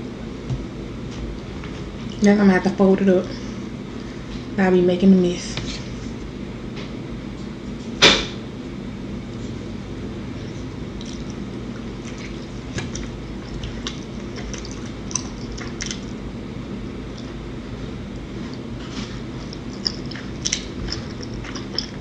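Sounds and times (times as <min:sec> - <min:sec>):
low steady hum: 0:00.0 - 0:22.0
soft chewing with mouth clicks: 0:10.4 - 0:16.2, 0:17.0 - 0:22.0.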